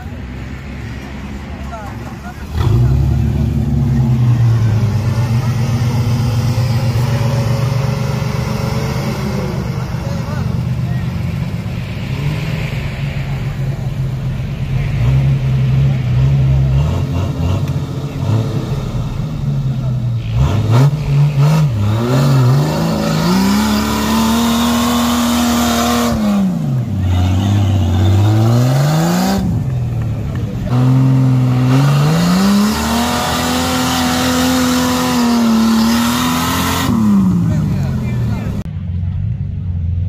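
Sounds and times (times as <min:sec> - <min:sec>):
engine revving hard: 0:02.4 - 0:10.3, 0:14.8 - 0:19.2, 0:20.2 - 0:29.7, 0:30.7 - 0:38.6.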